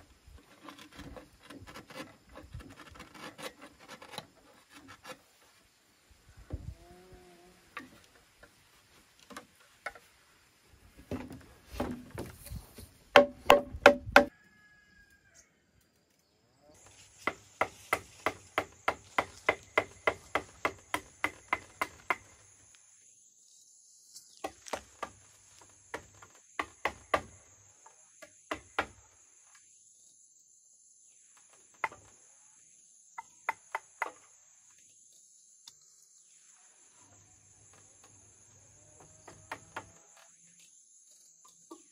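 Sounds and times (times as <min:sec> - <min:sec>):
crickets droning: 0:00.0 - 0:41.9
tool striking bamboo: 0:13.1 - 0:14.3, 0:17.2 - 0:22.4, 0:25.9 - 0:27.4, 0:28.2 - 0:29.0.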